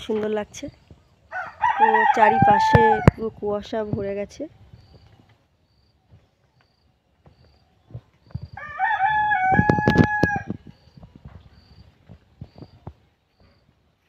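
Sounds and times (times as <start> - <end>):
rooster crowing: 1.3 - 3.1, 8.6 - 10.6.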